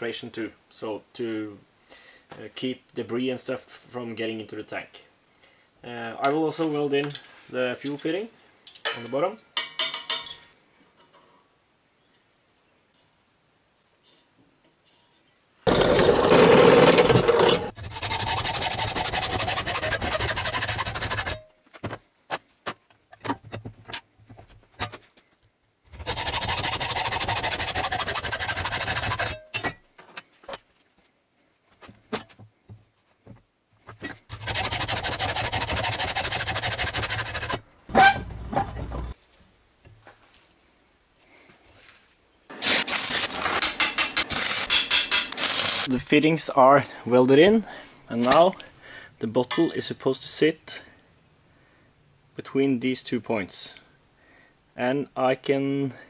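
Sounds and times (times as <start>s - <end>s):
arc welding hissing: 45.4s - 45.9s.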